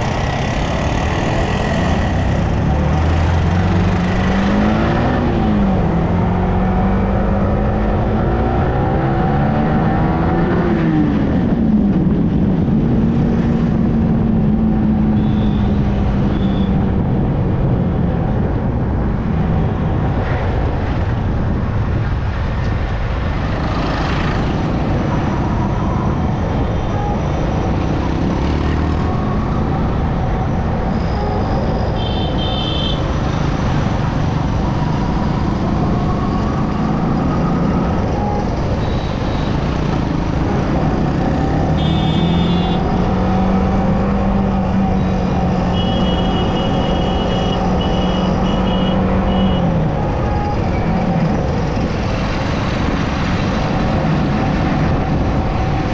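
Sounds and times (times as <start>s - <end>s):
motorcycle engine: 0.0s - 5.2s, 33.7s - 49.6s
wind and road noise: 0.0s - 55.9s.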